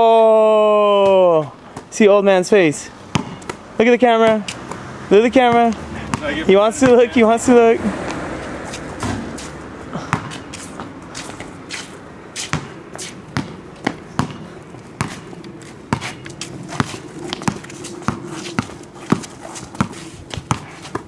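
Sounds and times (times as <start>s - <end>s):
basketball bouncing on concrete: 3.1s - 7.3s, 8.0s - 11.6s, 12.4s - 21.0s.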